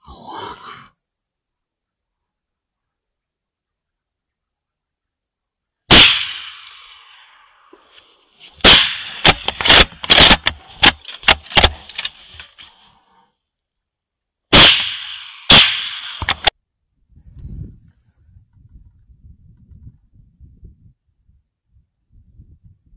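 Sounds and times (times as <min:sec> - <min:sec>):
rifle shots echoing: 0:05.9 - 0:07.3, 0:08.6 - 0:11.9, 0:14.5 - 0:16.5.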